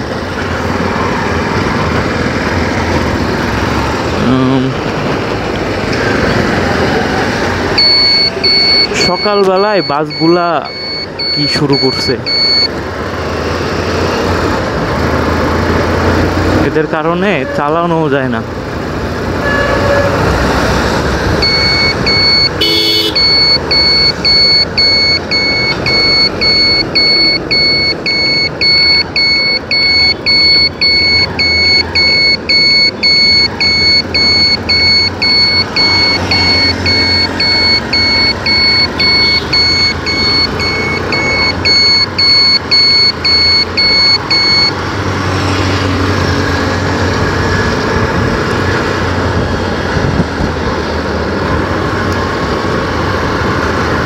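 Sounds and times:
electronic beeper beeping: 0:07.8 - 0:12.7, 0:21.4 - 0:44.8
motorcycle engine and wind: 0:44.8 - 0:54.0.

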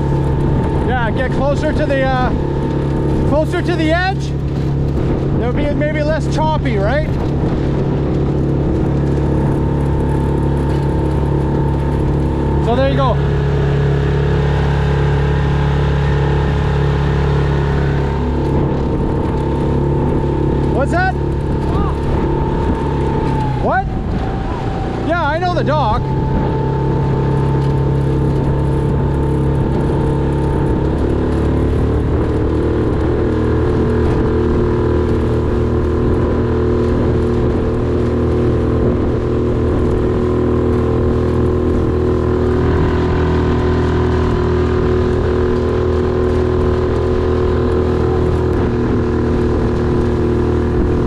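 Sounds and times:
outboard motor running: 0:00.0 - 0:51.0.

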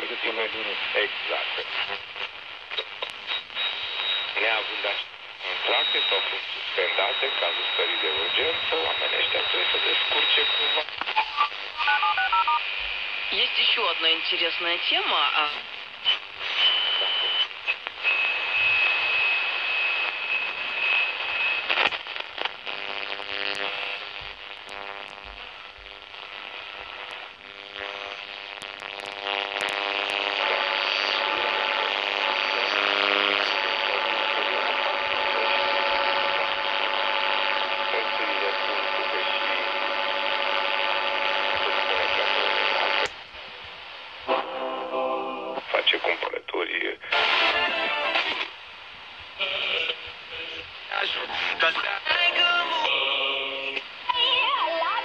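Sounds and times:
music through radio static: 0:00.0 - 0:43.1, 0:44.1 - 0:48.6, 0:49.3 - 0:55.0
held steady radio tones: 0:00.0 - 0:55.0
radio static hiss: 0:00.0 - 0:55.0
high radio whistle: 0:02.7 - 0:12.6, 0:16.0 - 0:21.9.

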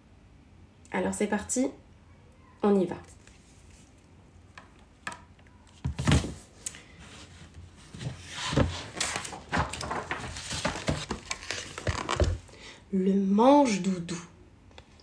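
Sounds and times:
pages rustling and flapping: 0:05.7 - 0:12.5.

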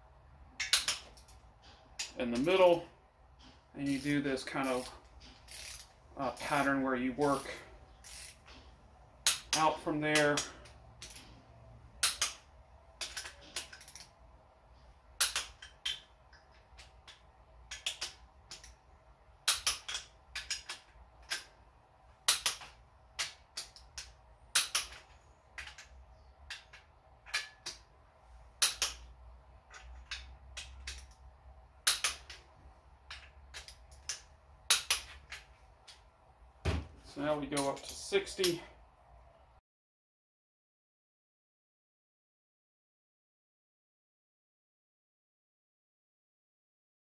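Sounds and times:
torque wrench clicking: 0:04.7 - 0:06.5, 0:08.0 - 0:08.5, 0:13.0 - 0:14.1, 0:15.2 - 0:18.8, 0:19.4 - 0:21.5, 0:22.3 - 0:27.8, 0:31.8 - 0:32.4.

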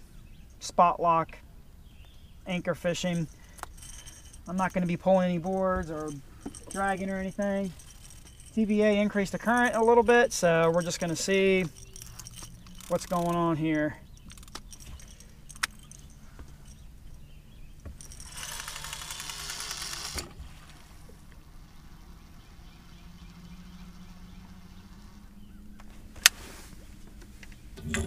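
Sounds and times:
steady low hum: 0:01.4 - 0:28.0
reel line rasping: 0:03.2 - 0:13.6
fishing reel clicks: 0:10.7 - 0:13.4.

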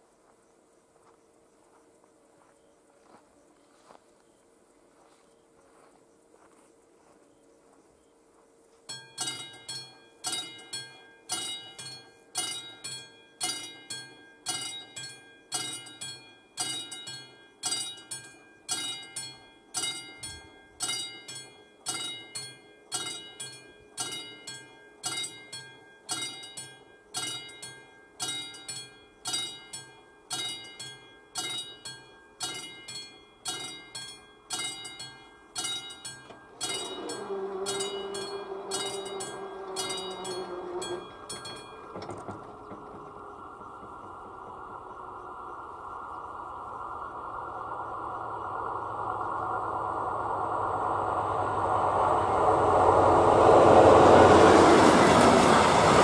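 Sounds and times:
level crossing bell ringing: 0:08.9 - 0:43.6.

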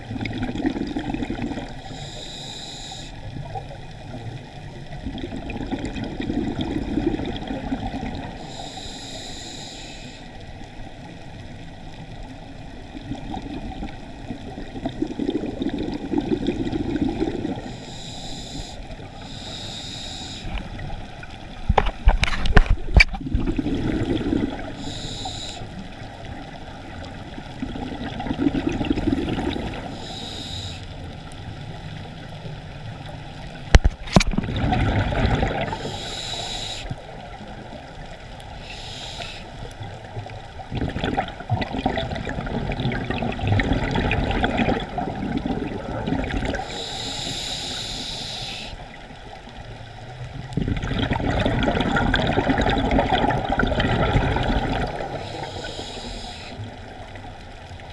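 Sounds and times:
exhaled bubbles gurgling: 0:00.0 - 0:09.5, 0:10.5 - 0:57.9
regulator inhale hiss: 0:01.7 - 0:03.4, 0:08.2 - 0:10.6, 0:17.5 - 0:20.8, 0:24.6 - 0:26.0, 0:29.7 - 0:31.4, 0:35.7 - 0:37.2, 0:38.4 - 0:39.8, 0:46.5 - 0:49.0, 0:54.8 - 0:56.9.

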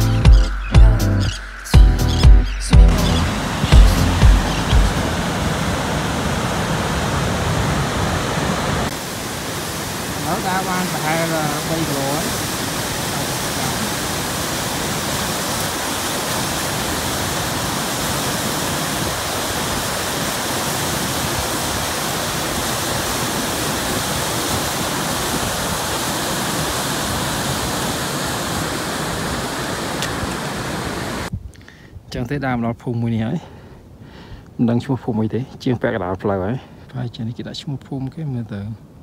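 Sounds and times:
stream rushing over boulders: 0:02.8 - 0:31.3.

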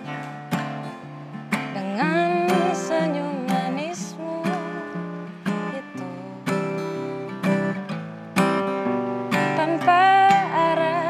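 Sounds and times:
acoustic guitar strummed: 0:00.0 - 0:11.0
person singing: 0:01.8 - 0:06.8, 0:09.4 - 0:11.0.

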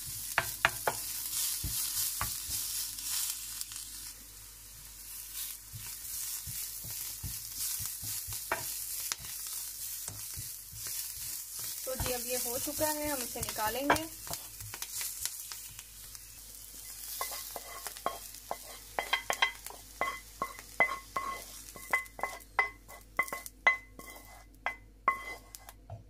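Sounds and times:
cabbage sizzling in a pan: 0:00.0 - 0:26.0
metal utensil scraping pan: 0:17.1 - 0:25.8.

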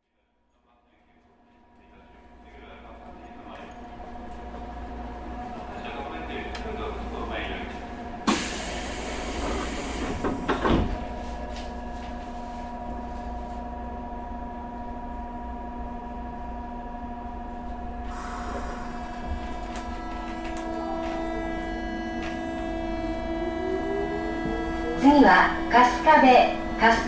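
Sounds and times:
electrical hum of train: 0:00.0 - 0:27.0
rising train motor whine: 0:00.6 - 0:27.0
hiss: 0:08.3 - 0:10.5, 0:18.1 - 0:19.0.

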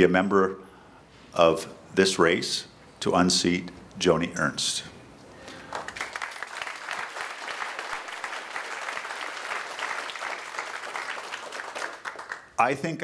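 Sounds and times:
audience applauding: 0:05.5 - 0:12.6.

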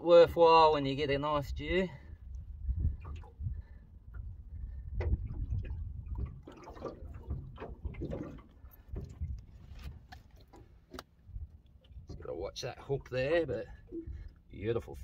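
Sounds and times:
low rumble: 0:02.1 - 0:06.4
wet splashing: 0:05.1 - 0:11.0.

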